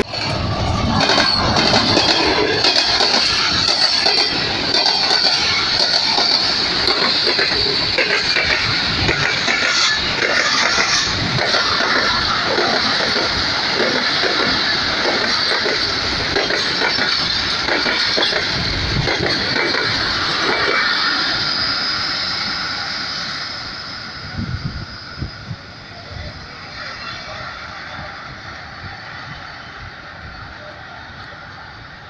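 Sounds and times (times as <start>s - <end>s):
train wheels clattering over rail joints: 0.0s - 22.7s
train rumble and hiss: 0.0s - 32.0s.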